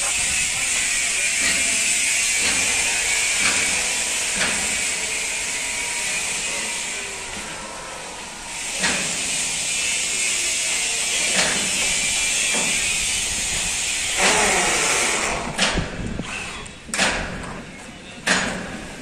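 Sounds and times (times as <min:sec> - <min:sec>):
power tool hissing: 0:08.5 - 0:16.7.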